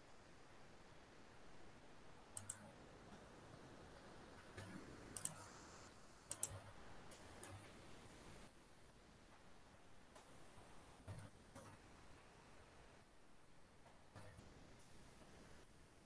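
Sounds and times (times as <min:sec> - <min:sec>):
faint background hiss: 0:00.0 - 0:16.0
sharp clicks: 0:02.4 - 0:02.7, 0:05.2 - 0:05.5, 0:06.3 - 0:07.6.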